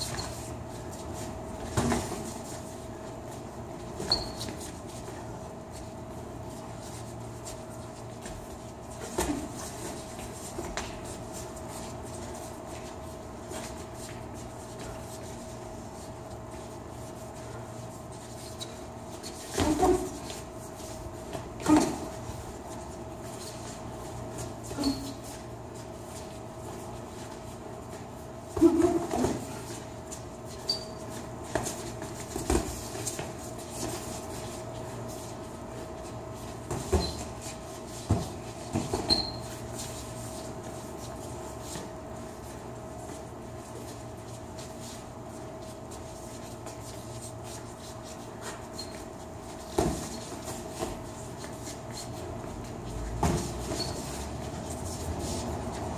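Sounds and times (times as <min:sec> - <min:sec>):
sneakers scuffing on floor: 0:00.0 - 0:55.9
steady hum: 0:00.0 - 0:55.9
high squeaks: 0:04.0 - 0:04.6, 0:24.7 - 0:25.3, 0:30.5 - 0:31.0, 0:38.9 - 0:39.6, 0:48.6 - 0:49.1, 0:53.6 - 0:54.2.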